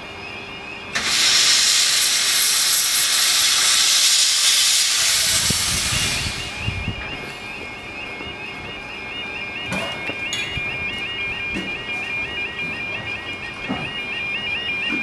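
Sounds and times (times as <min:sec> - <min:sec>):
steam locomotive hissing steam: 0:00.9 - 0:06.8.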